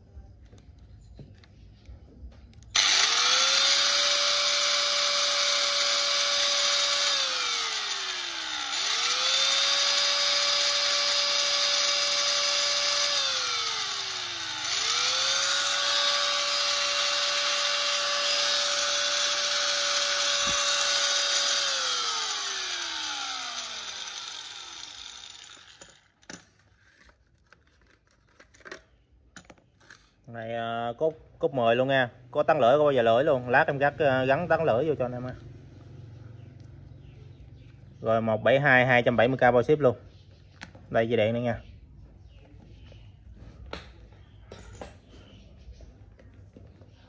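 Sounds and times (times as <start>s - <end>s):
angle grinder whining: 2.8s - 26.4s.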